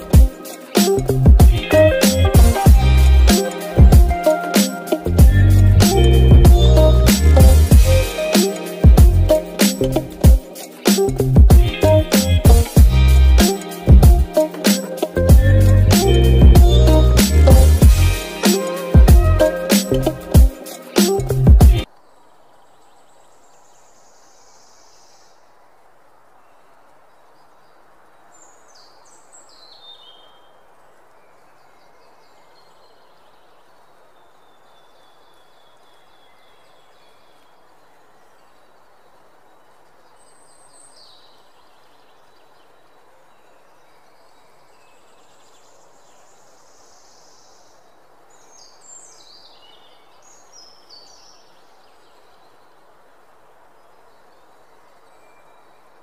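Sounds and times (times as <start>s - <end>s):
high bird chirping: 0.0s - 21.9s
faint outdoor ambience: 0.0s - 56.0s.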